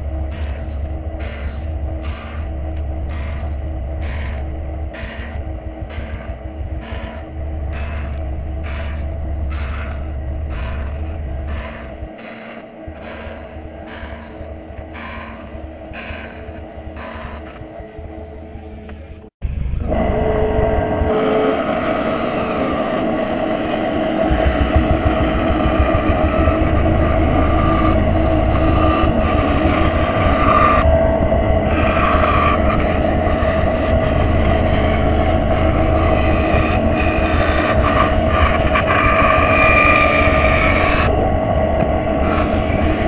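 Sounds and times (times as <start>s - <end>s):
band saw motor hum: 0.0s - 30.9s, 31.6s - 41.2s
saw blade cutting wood: 0.2s - 17.7s.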